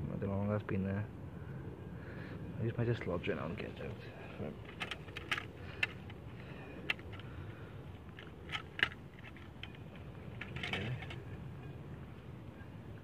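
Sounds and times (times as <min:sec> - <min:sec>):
low steady rumble: 0:00.0 - 0:13.0
handling clicks and crackles: 0:03.8 - 0:11.8.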